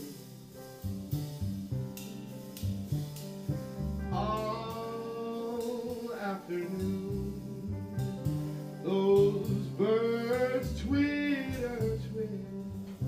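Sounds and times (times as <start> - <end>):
lightly struck cymbals: 0.0 - 13.0
piano chords: 0.0 - 13.0
upright bass plucking: 0.0 - 13.0
man singing: 4.1 - 8.1, 8.8 - 13.0.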